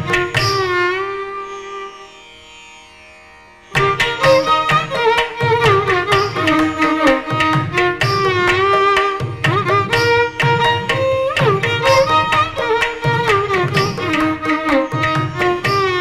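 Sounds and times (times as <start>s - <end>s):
violin melody sliding between notes: 3.8s - 16.0s.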